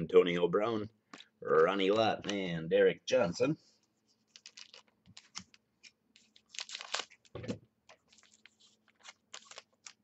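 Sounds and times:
plastic wrapper crinkling: 4.3s - 10.0s.

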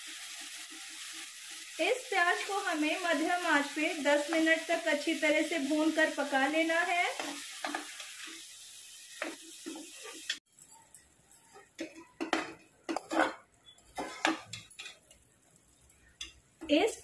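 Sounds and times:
onion paste sizzling in oil: 0.0s - 10.6s.

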